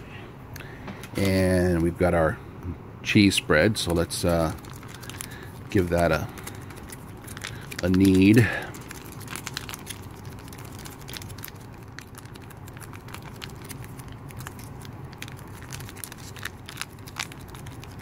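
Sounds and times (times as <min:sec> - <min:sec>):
foil pouch crinkling: 0:03.9 - 0:18.0.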